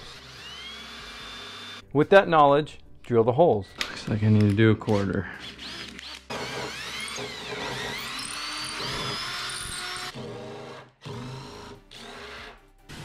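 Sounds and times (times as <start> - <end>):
cordless drill whining: 0.0 - 1.8, 4.9 - 12.5.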